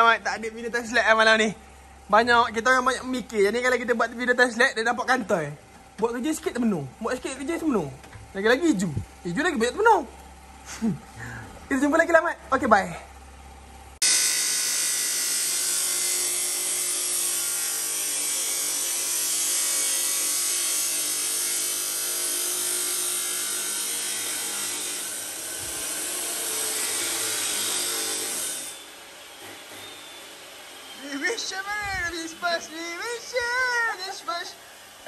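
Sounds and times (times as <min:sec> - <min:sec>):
chop saw grinding steel: 0:14.0 - 0:34.6.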